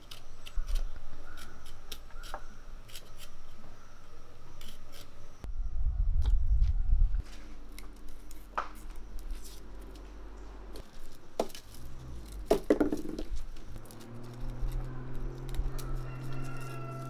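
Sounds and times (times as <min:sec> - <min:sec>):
knife scraping garlic skin: 0:00.0 - 0:03.6, 0:04.5 - 0:05.2, 0:13.8 - 0:17.0.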